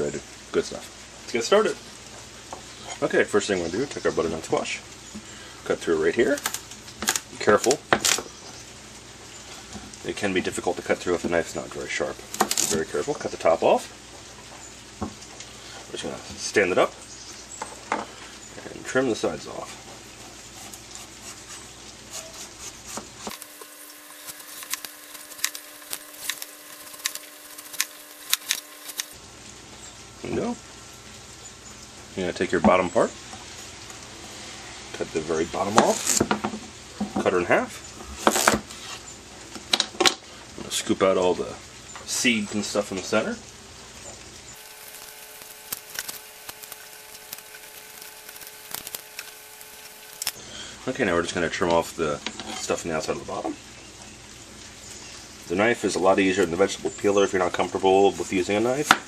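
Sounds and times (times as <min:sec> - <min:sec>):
knife cutting through squash rind: 0:20.2 - 0:29.2
faint hum: 0:44.5 - 0:51.0.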